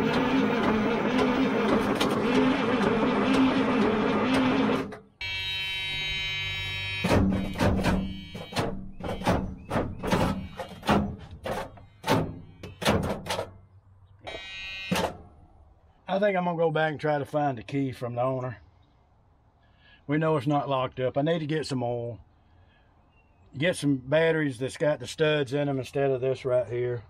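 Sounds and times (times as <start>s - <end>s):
diesel engine cranking on starter: 0.0s - 5.1s.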